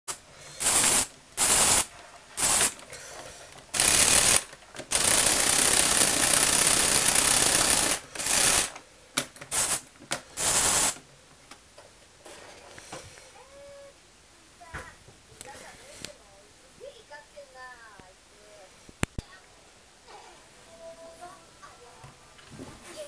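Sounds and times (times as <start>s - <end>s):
plastic gears rattling: 3.7s - 9.7s.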